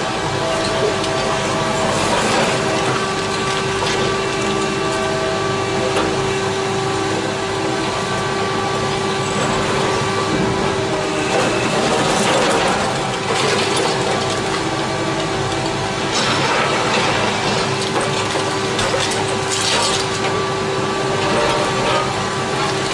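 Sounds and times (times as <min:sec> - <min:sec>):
excavator diesel engine and hydraulics: 0:00.0 - 0:22.9
concrete crunching and cracking: 0:11.3 - 0:20.6.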